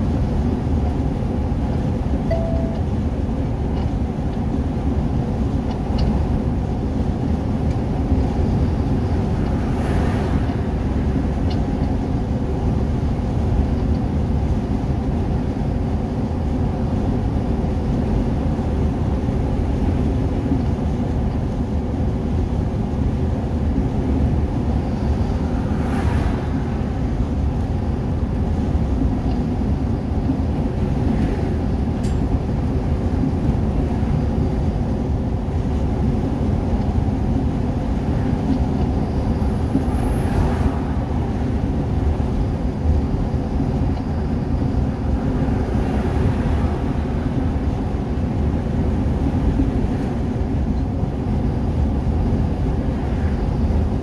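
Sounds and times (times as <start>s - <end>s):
engine and tyre rumble in cabin: 0.0s - 54.0s.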